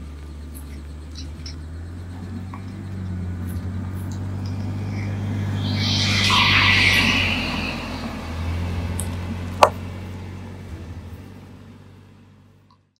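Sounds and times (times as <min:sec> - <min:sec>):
brief high buzz: 0:04.5 - 0:09.3.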